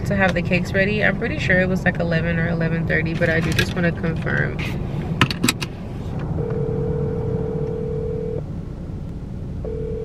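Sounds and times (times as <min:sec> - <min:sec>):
low rumble inside car: 0:00.0 - 0:10.0
phone ringback tone: 0:06.4 - 0:08.4, 0:09.6 - 0:10.0.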